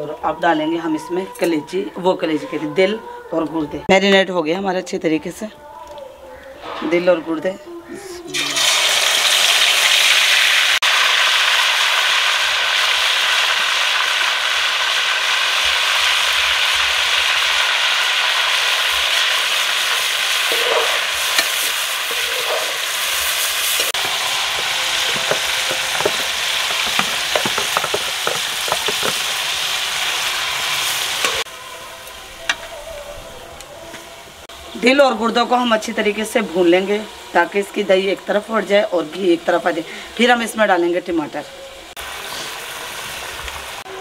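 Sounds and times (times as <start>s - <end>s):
meat sizzling in a pan: 8.4s - 31.5s, 42.0s - 44.0s
ladle scraping a pan: 20.4s - 31.4s.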